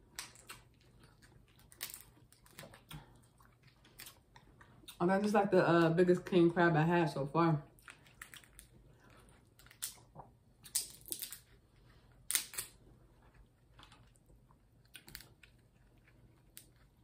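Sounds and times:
crab shell cracking: 0.0 - 3.1, 7.8 - 8.7, 9.5 - 11.5, 12.3 - 12.8, 14.8 - 16.8.

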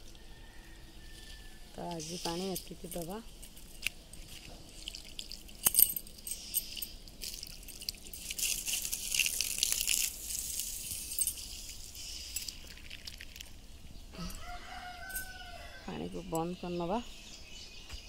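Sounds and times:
water splashing onto a wall: 7.2 - 11.2.

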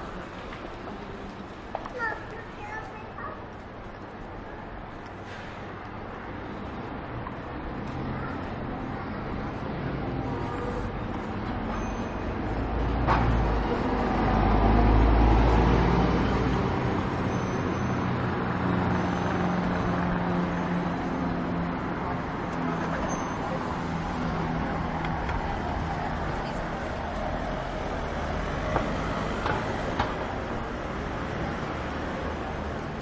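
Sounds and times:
cars driving past: 5.0 - 33.0
vehicle rumbling past: 12.3 - 33.0.

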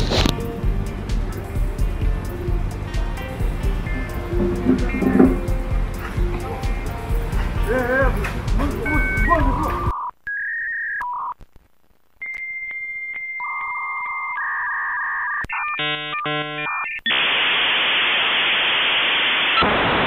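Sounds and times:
buzzing chord: 0.0 - 9.9, 15.8 - 16.7
static hiss: 0.0 - 9.9, 11.2 - 13.4, 15.5 - 20.0
electronic beeps: 3.9 - 5.5, 8.8 - 11.4, 12.2 - 17.3.

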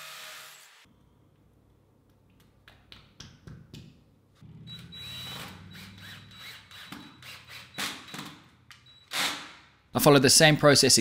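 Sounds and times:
cordless drill running: 5.1 - 8.2.

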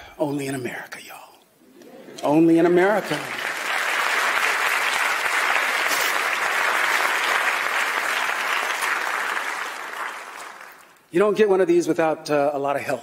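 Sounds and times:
large audience applauding: 2.2 - 11.0.

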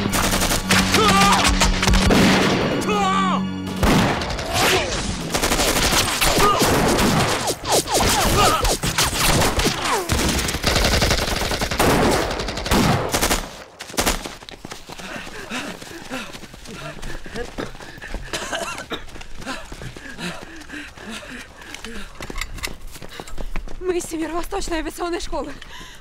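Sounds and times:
rapid rifle gunfire: 0.0 - 2.5, 5.2 - 14.3.

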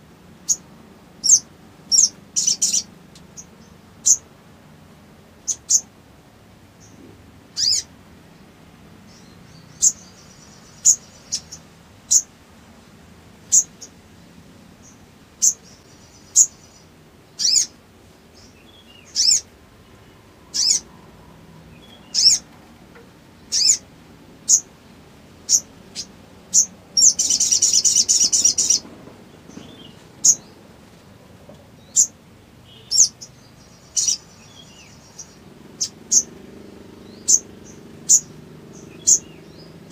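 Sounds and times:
high sunbird chirps: 0.0 - 4.3, 5.4 - 5.9, 6.8 - 7.9, 9.0 - 12.4, 13.4 - 14.0, 14.7 - 30.7, 31.7 - 39.9
rapid buzzing bird trill: 1.2 - 4.3, 5.4 - 5.9, 7.6 - 7.9, 9.5 - 12.3, 13.5 - 13.9, 14.8 - 17.8, 18.4 - 22.5, 23.4 - 24.7, 25.4 - 28.8, 31.9 - 39.9.

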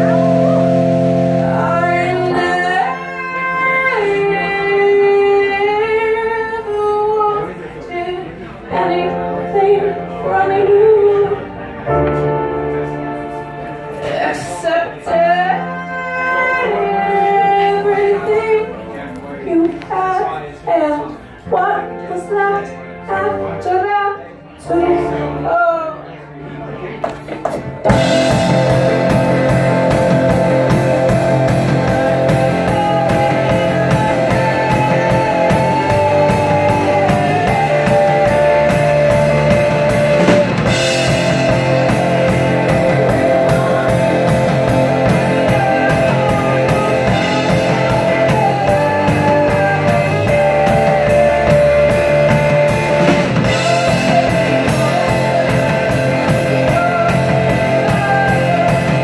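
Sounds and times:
drum kit beat: 0.0 - 2.4, 27.4 - 59.0
rock band playing: 0.0 - 5.3, 27.0 - 59.0.

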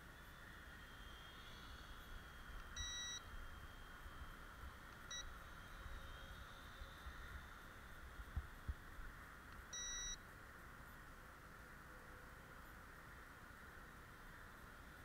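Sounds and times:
high whine of small motors: 0.0 - 15.0
electronic beeps: 2.8 - 3.3, 5.1 - 5.3, 9.7 - 10.2.

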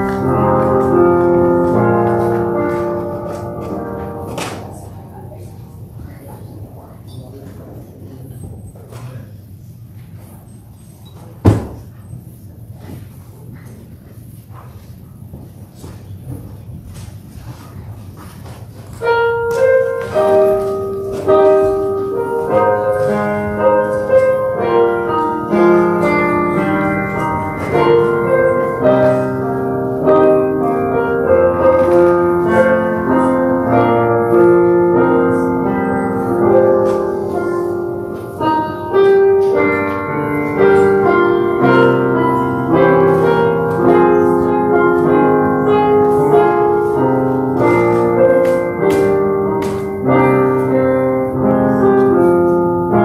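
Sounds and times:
slow keyboard chords: 0.0 - 7.4, 18.9 - 53.0.

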